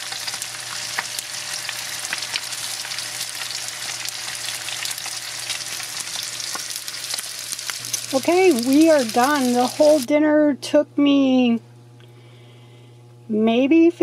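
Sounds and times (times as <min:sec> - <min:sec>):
food sizzling in frying pans: 0:00.0 - 0:10.1.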